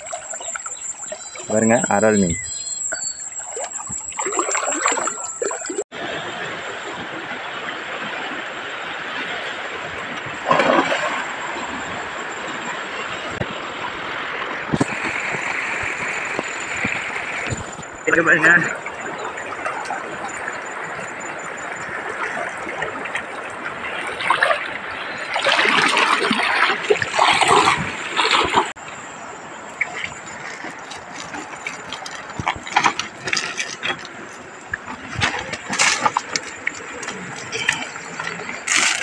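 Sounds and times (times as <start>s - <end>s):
water sloshing and splashing: 0.0s - 39.0s
feet on river pebbles: 29.6s - 39.0s.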